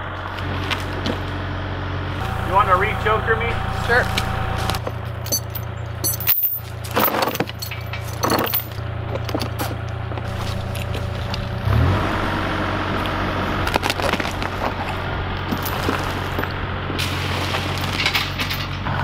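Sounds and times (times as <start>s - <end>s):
excavator diesel engine: 0.0s - 19.0s
chain clanking and rattling: 4.8s - 11.5s, 13.7s - 18.9s.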